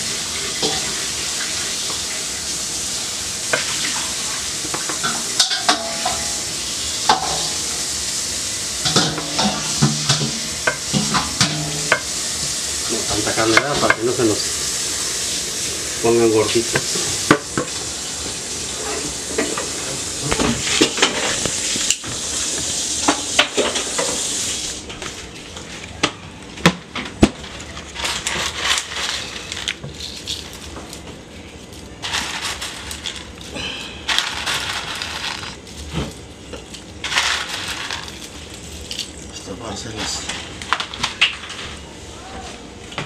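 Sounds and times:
food sizzling in pan: 0.0s - 24.9s
tongs and dishes clattering: 4.7s - 6.4s, 8.8s - 12.1s.

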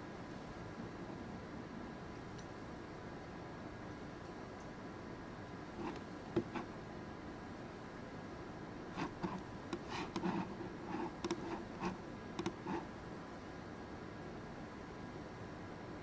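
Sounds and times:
faint room hum: 0.0s - 16.0s
keyboard and mouse clicks: 5.8s - 6.7s, 9.0s - 12.8s.

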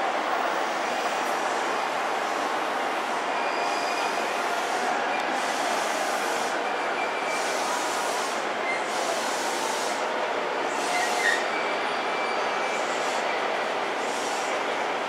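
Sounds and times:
train braking rumble and hiss: 0.0s - 15.0s
wheels squealing: 10.7s - 13.4s.

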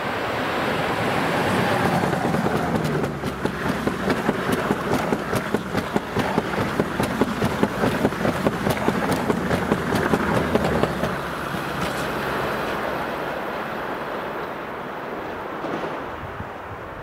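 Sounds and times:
train rolling noise: 0.0s - 17.0s
train wheels clicking over rail joints: 1.4s - 12.9s.

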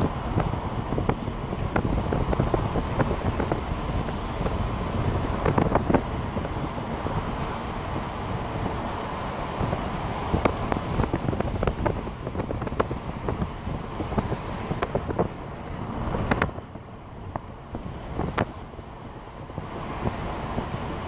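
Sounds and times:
vehicle road noise: 0.0s - 21.0s.

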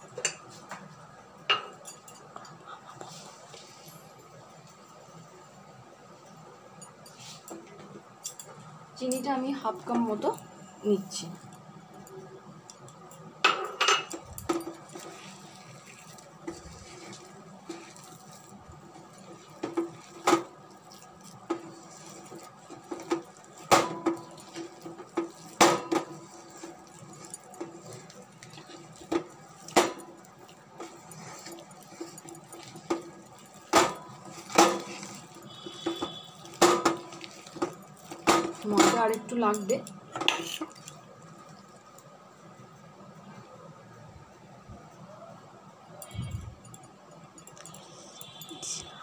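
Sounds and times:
hand kneading dough: 14.6s - 39.8s.

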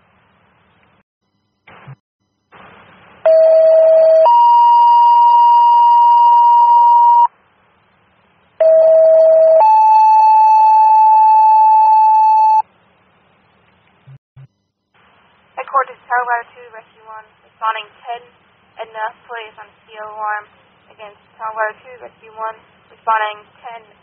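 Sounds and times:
radio static bursts: 1.7s - 3.0s.

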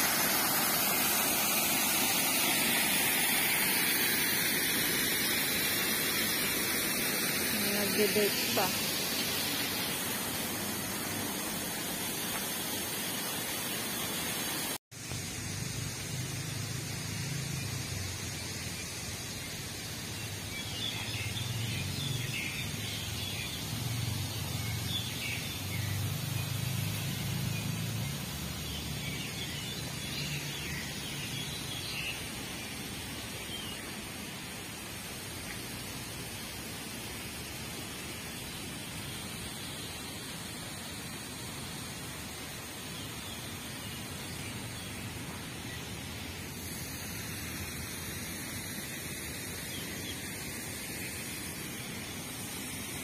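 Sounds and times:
outdoor park hiss: 0.0s - 53.0s.

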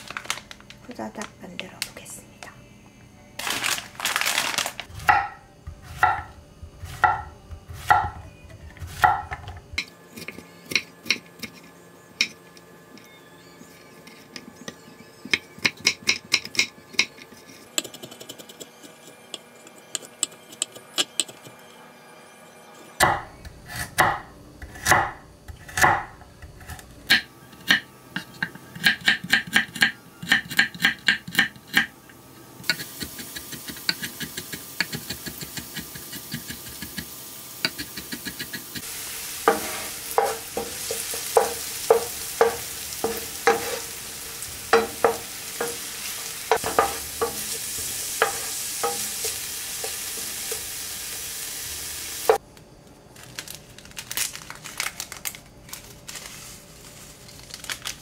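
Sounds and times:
knife chopping on wooden board: 7.0s - 8.2s.

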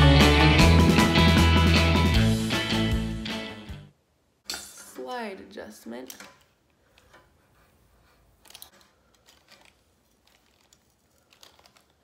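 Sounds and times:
fingers rustling through hair: 6.9s - 12.0s.

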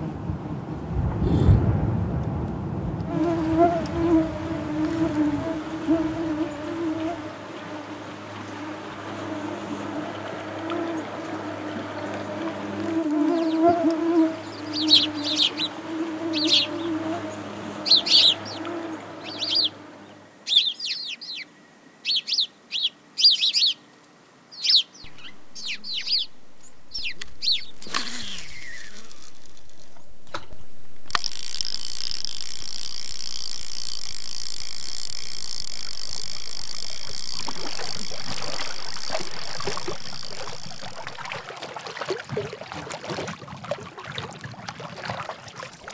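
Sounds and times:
mosquitoes whining: 3.1s - 20.2s, 25.1s - 29.6s, 31.1s - 41.4s
songbird chirps: 5.6s - 41.4s
steady hiss: 25.1s - 41.4s.

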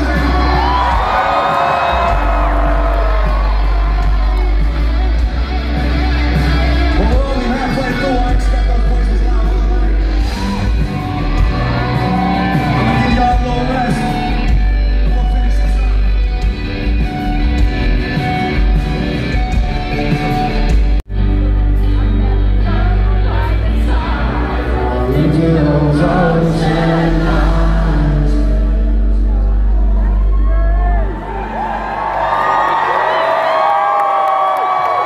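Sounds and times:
live rock band playing: 0.0s - 31.2s
person singing: 21.4s - 30.2s.

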